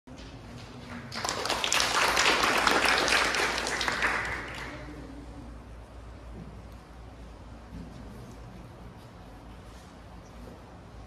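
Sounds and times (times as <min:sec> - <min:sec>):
small audience clapping: 0:00.1 - 0:05.1.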